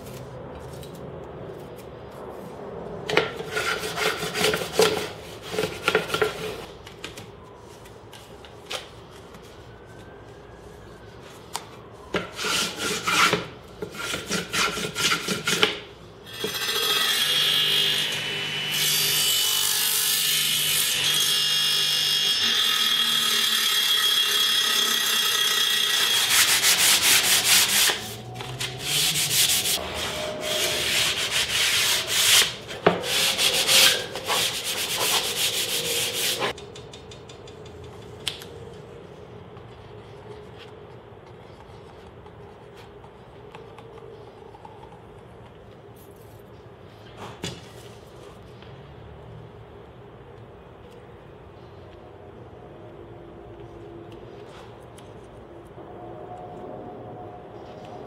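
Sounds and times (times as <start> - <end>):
wood rubbed by hand: 26.1 - 36.5.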